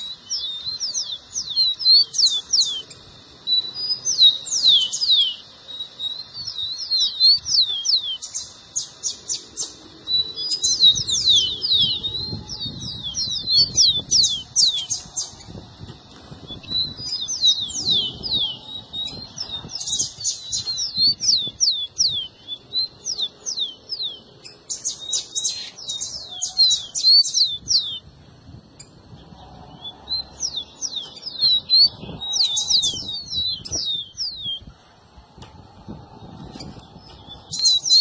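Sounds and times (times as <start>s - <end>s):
sparrows calling: 0.0s - 38.0s.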